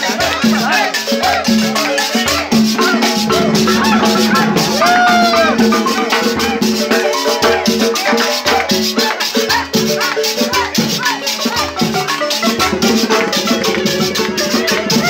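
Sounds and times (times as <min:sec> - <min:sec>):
party voices: 0:02.5 - 0:07.4
latin dance music: 0:02.6 - 0:07.4.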